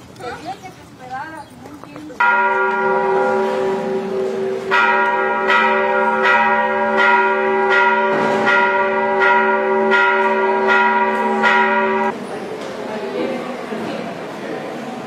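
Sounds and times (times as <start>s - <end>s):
church bell ringing: 2.2s - 12.2s.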